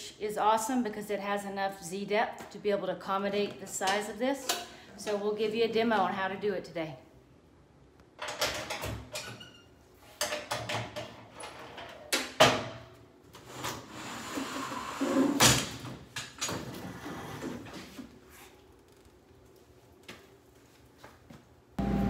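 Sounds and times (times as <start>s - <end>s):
metal bed scraping slide: 13.4s - 15.5s.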